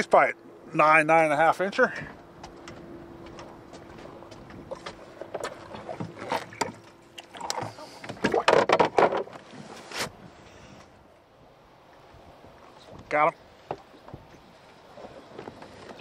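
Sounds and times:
clicks and knocks on boat: 2.0s - 9.5s, 12.9s - 14.4s, 15.0s - 16.0s.

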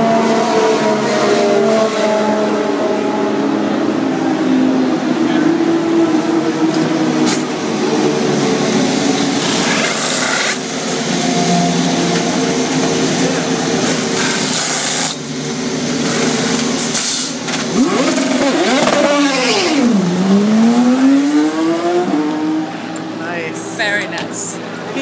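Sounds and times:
car engine revving: 0.0s - 25.0s
race car engine: 0.0s - 25.0s
pneumatic wheel guns rattling: 9.4s - 11.2s, 13.8s - 15.2s, 16.0s - 19.1s.

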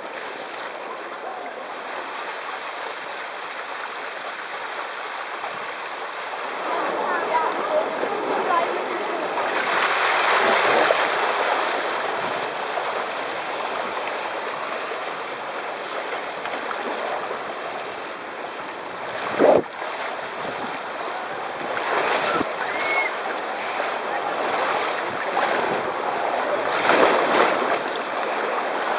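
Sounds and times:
water rushing down waterslide: 0.0s - 28.9s.

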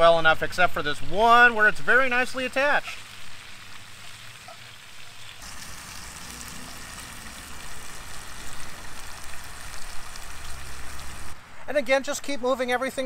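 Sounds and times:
meat sizzling in skillet: 1.0s - 11.4s.

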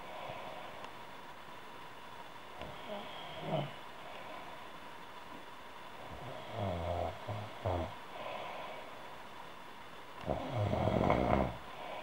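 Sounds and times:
woman snoring: 2.6s - 3.8s, 6.1s - 8.4s, 10.2s - 12.0s.

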